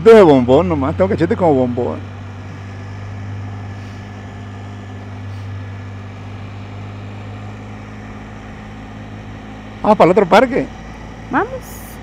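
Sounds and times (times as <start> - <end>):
motorcycle engine humming: 0.0 - 12.0
road and wind noise: 0.0 - 12.0.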